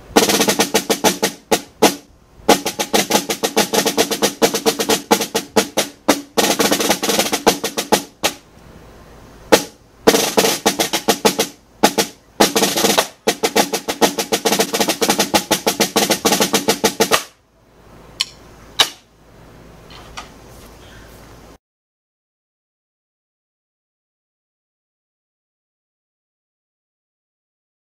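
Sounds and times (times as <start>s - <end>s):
snare drum rolls: 0.0s - 8.4s, 9.5s - 17.4s, 18.2s - 19.1s.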